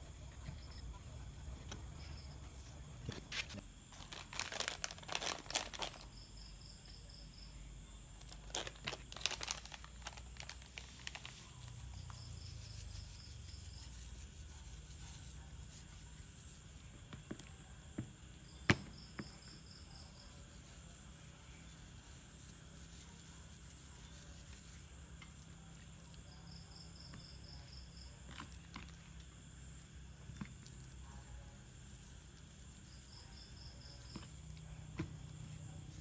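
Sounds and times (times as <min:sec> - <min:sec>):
insect trill: 0:00.0 - 0:36.0
plastic sachet crinkling and tearing: 0:03.9 - 0:06.1, 0:08.2 - 0:11.4.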